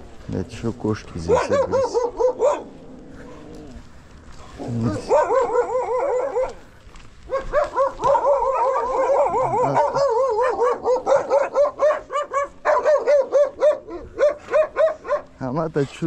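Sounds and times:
dog yapping: 1.2s - 2.7s, 4.6s - 6.6s, 7.3s - 15.3s.

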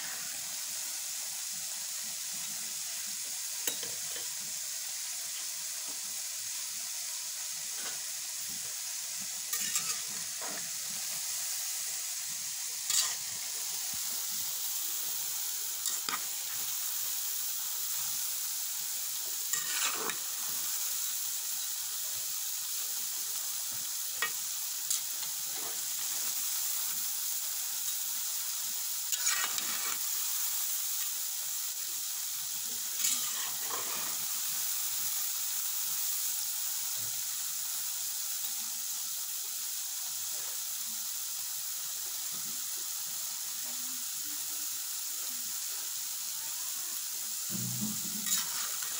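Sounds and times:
dough deep-frying in hot oil: 0.0s - 48.9s
metal spatula scraping pot: 9.5s - 10.6s, 12.9s - 13.3s, 19.5s - 20.2s, 29.1s - 30.0s, 33.0s - 34.2s, 47.9s - 48.9s.

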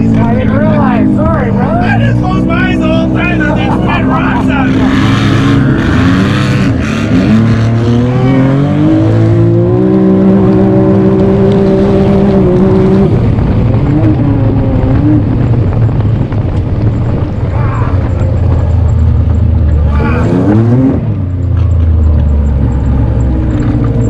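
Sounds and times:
off-road vehicle engine revving: 0.0s - 24.0s
wind on microphone: 4.7s - 22.0s.

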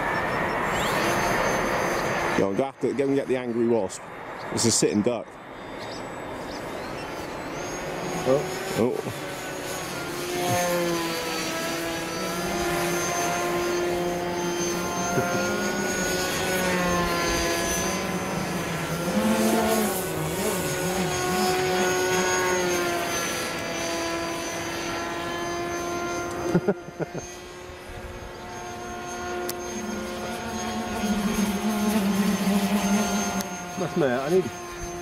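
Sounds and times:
model aircraft motor whine: 0.0s - 35.0s.

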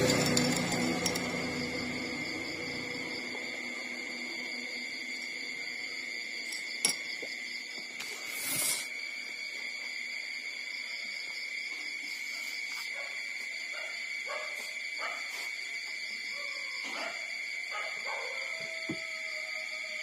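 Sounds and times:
steady high-pitched whine: 0.0s - 10.6s.

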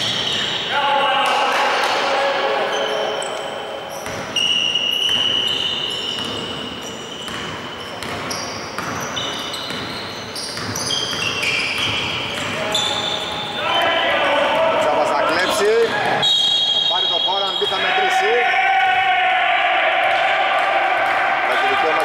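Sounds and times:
players shouting: 0.2s - 4.0s, 12.6s - 22.0s
basketball bouncing on wooden court: 4.0s - 4.4s, 5.0s - 13.1s.

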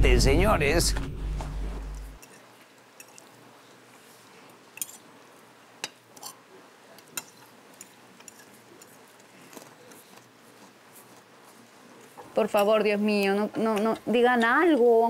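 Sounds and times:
cutlery clinking on plates: 3.0s - 3.3s, 7.0s - 8.6s.

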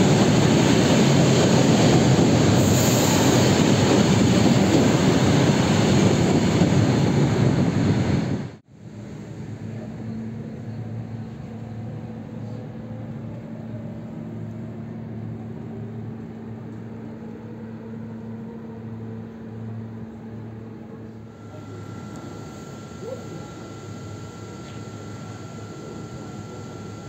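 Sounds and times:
electric train hum: 0.0s - 27.0s
faint falling whine: 21.1s - 27.0s
higher steady tone: 21.2s - 27.0s.

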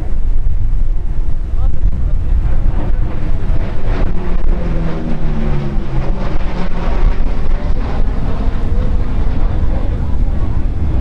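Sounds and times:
propeller plane engines droning: 0.0s - 11.0s
wind buffeting microphone: 0.0s - 11.0s.

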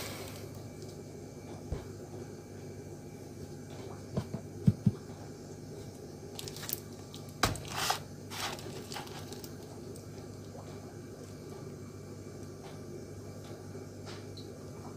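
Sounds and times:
plastic wrapping crinkling: 6.3s - 10.0s.

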